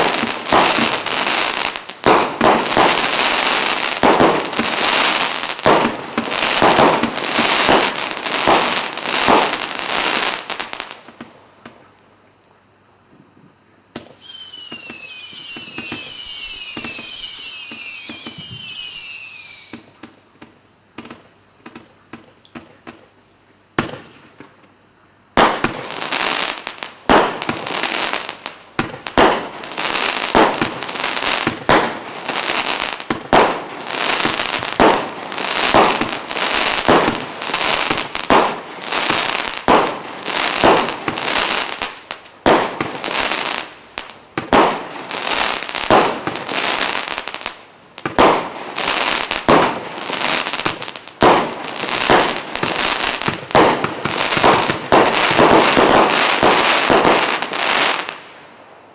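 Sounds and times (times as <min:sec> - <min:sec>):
firework shots: 0:00.0 - 0:11.8, 0:23.8 - 0:24.6, 0:25.4 - 0:47.4, 0:48.0 - 0:58.3.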